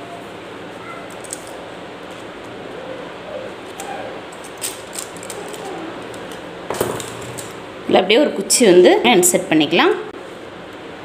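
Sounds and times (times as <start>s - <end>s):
scissors snipping foil: 1.1s - 1.6s, 3.7s - 7.6s.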